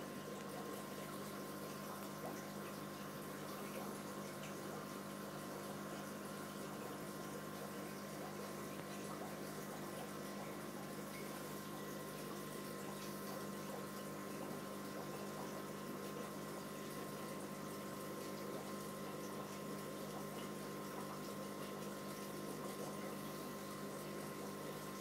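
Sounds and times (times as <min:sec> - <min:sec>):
aquarium filter hum: 0:00.0 - 0:25.0.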